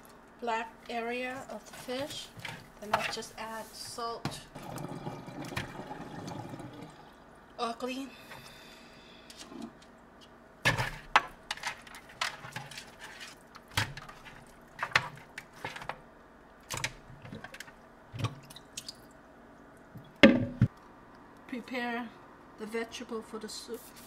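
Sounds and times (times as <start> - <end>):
colander knocking in sink: 20.2 - 20.7.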